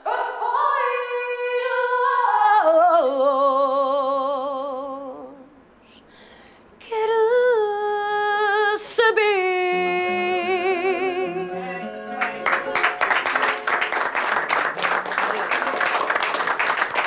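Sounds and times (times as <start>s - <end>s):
woman singing with vibrato: 0.0s - 5.5s, 6.8s - 12.0s
plucked guitar notes: 9.8s - 13.9s
applause: 12.2s - 17.0s.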